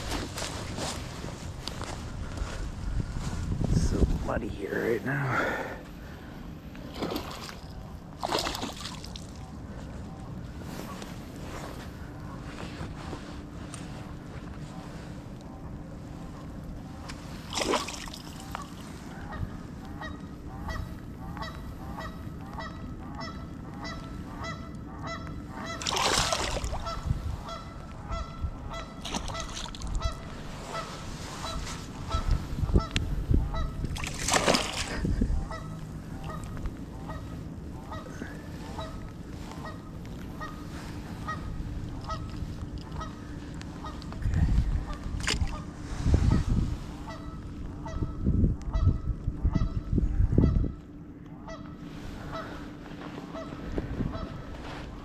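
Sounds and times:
fish splashing at water surface: 6.9 - 9.4, 17.5 - 18.8, 25.8 - 26.8, 34.0 - 35.0
bird calling: 17.9 - 33.9, 34.6 - 44.2, 51.4 - 54.6.

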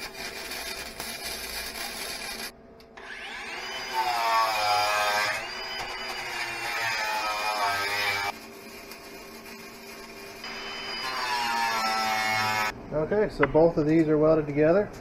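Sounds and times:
welding arc crackling: 0.0 - 2.6, 4.0 - 12.7
wire wheel grinder whining: 0.0 - 12.7.

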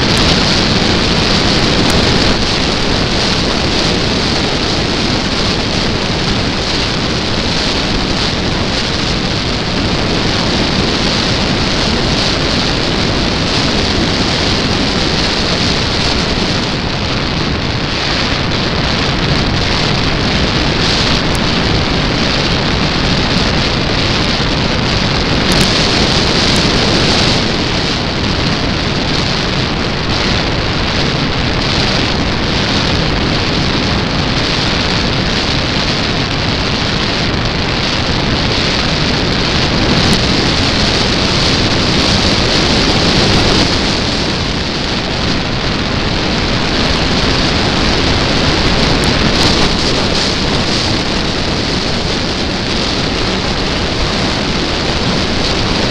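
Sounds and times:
loud rushing wind: 0.0 - 55.9
spinning propeller: 37.8 - 53.2.

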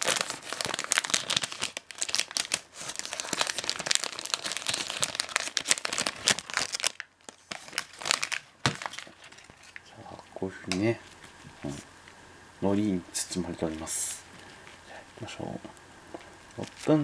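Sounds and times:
plastic wrapper crinkling: 0.0 - 11.8, 15.6 - 17.0.

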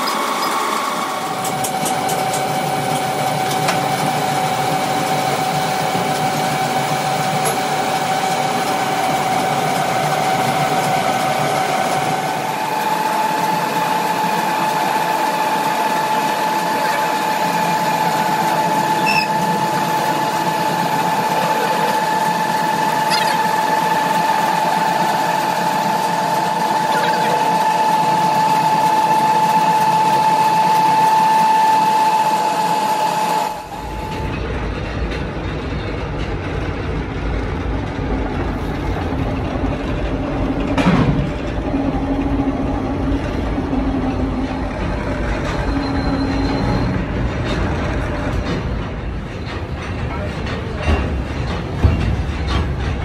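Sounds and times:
lathe cutting tool whining: 0.0 - 34.3
lathe running rumble: 0.0 - 53.0.

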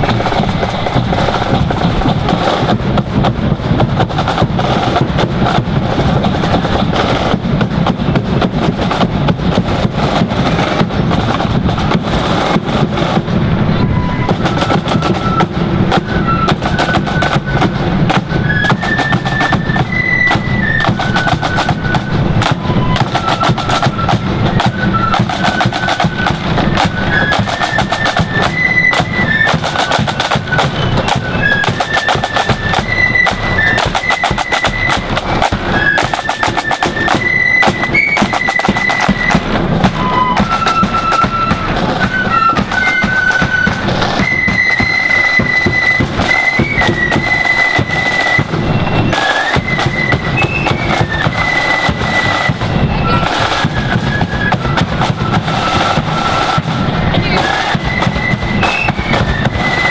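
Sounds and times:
flute melody: 0.0 - 59.9
snare drums rattling: 0.0 - 59.9.

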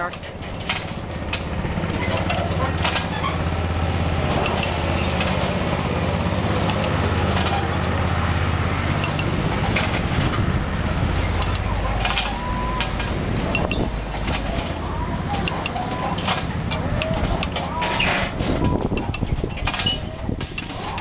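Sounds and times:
engine humming: 0.0 - 21.0
light metallic clinks: 11.4 - 14.6.

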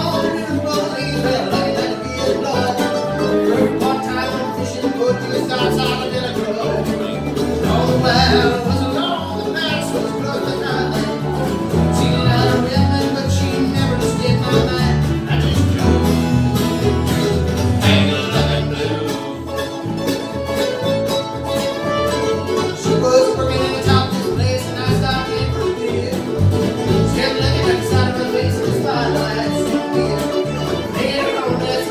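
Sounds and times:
mandolin: 0.0 - 31.9
resonator guitar: 0.0 - 31.9
strummed acoustic guitar: 0.0 - 31.9
upright bass: 0.0 - 31.9
bowed fiddle: 15.8 - 31.9.

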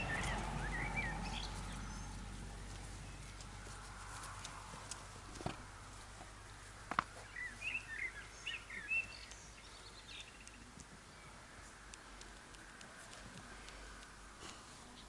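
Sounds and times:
small bird chirping: 0.0 - 3.4, 7.2 - 11.4
faint outdoor background: 0.0 - 15.0.

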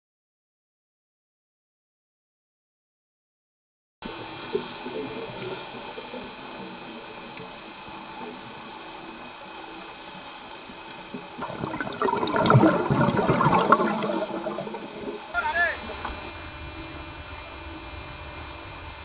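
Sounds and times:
diver regulator bubbling: 4.1 - 16.3
underwater hiss: 4.1 - 19.0.

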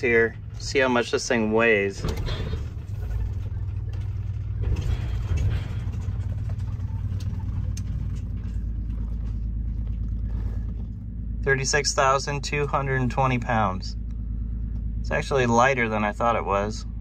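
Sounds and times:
rattling: 0.0 - 15.2
diesel engine running: 0.0 - 17.0.

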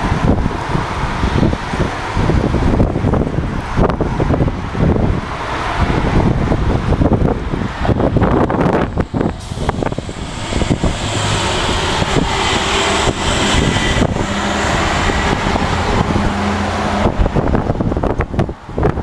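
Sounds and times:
vehicle running on road: 0.0 - 19.0
wind buffeting microphone: 0.0 - 19.0.

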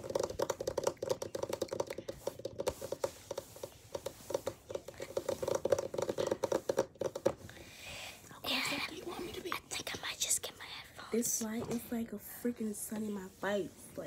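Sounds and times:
fingers tapping: 0.0 - 7.4.

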